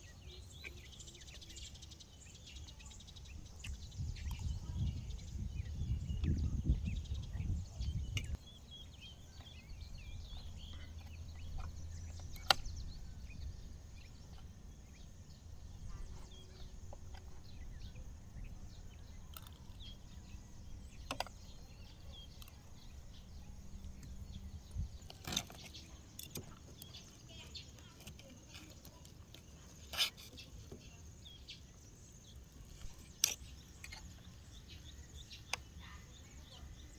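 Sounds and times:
small birds chirping: 0.0s - 36.9s.

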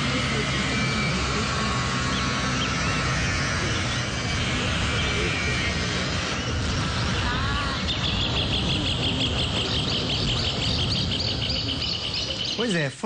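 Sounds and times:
steady broad outdoor noise: 0.0s - 13.0s
rapid high chirp: 7.7s - 13.0s.

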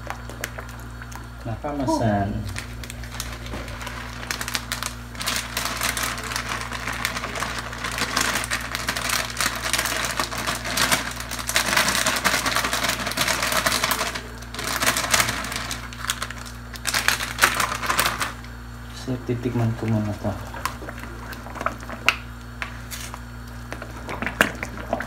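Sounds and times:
cheese shaken from canister: 3.0s - 18.4s.

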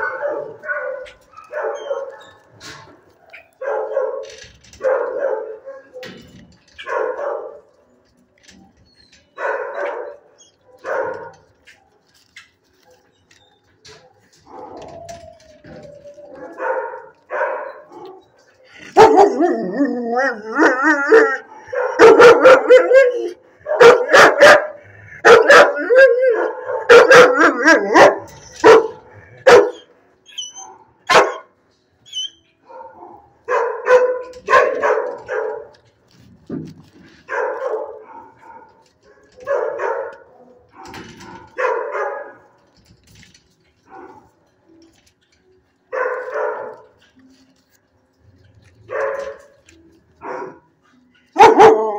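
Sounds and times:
dog barking: 0.0s - 2.4s, 3.3s - 6.1s, 6.8s - 7.7s, 9.4s - 11.5s, 16.5s - 18.2s, 19.0s - 19.4s, 21.7s - 29.9s, 30.7s - 31.5s, 32.6s - 35.8s, 37.3s - 38.8s, 39.4s - 42.4s, 45.9s - 47.0s, 48.8s - 49.4s, 50.2s - 50.7s, 51.4s - 51.9s.

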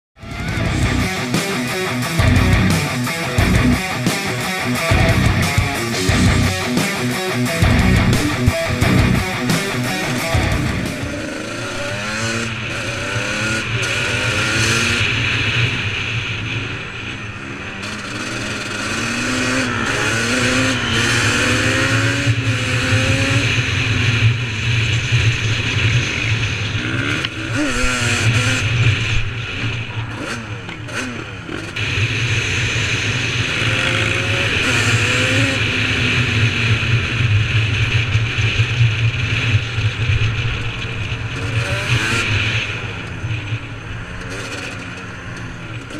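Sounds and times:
atv engines revving: 0.2s - 45.9s
steady low drone: 0.3s - 13.7s.

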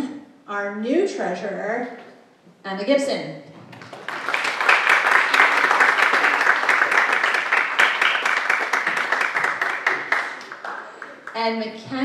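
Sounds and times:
audience applauding: 3.6s - 11.4s.

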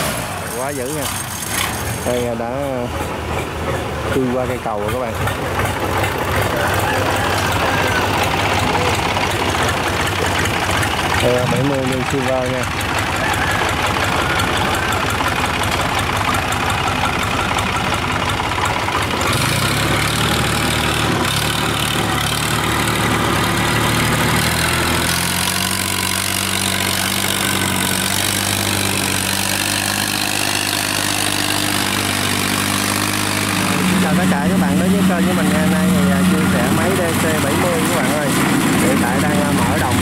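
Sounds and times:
boat engine running: 0.0s - 40.0s.

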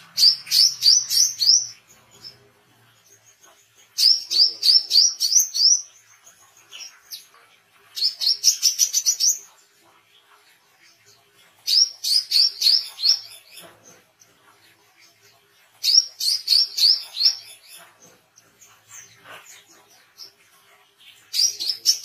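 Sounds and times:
sunbird high rapid chirping: 15.8s - 17.8s.

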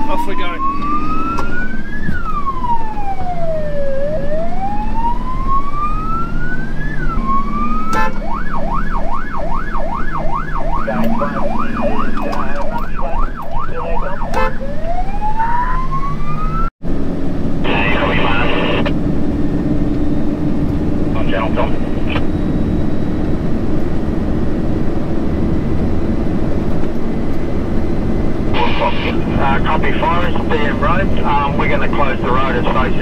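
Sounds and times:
electronic siren wailing and yelping: 0.0s - 16.7s, 17.7s - 18.9s
truck engine running: 8.8s - 13.6s.

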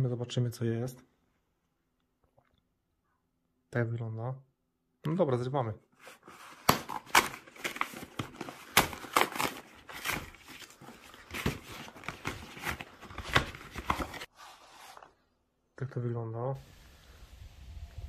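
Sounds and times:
rustling and crackling cardboard: 6.0s - 15.2s.

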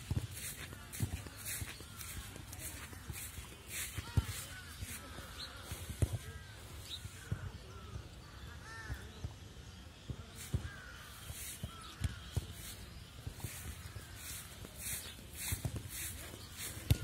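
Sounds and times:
footsteps on grass: 0.0s - 9.1s, 10.0s - 17.0s
crows cawing: 7.7s - 9.1s, 10.6s - 12.2s.

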